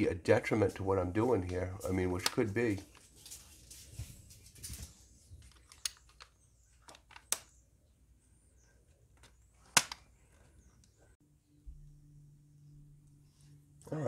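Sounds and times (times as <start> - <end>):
air rifle parts clicking: 5.4 - 7.6.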